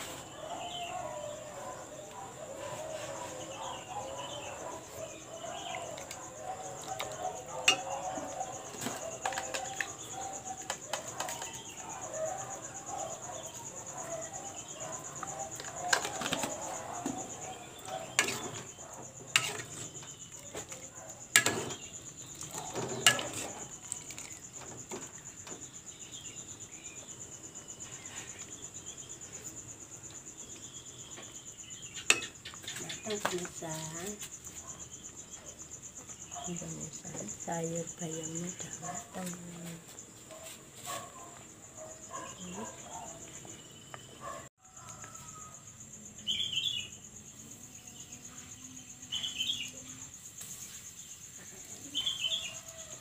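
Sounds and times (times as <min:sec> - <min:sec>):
ladle scraping metal pot: 0:19.3 - 0:19.9, 0:21.3 - 0:24.4.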